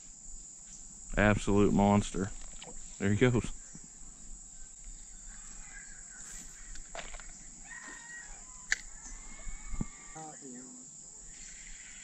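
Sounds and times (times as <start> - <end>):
insects droning: 0.0 - 12.0
sharp click: 8.7 - 8.9.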